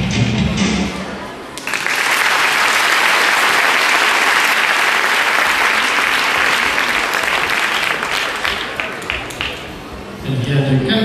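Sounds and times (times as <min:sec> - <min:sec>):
audience applauding: 0:01.6 - 0:09.7.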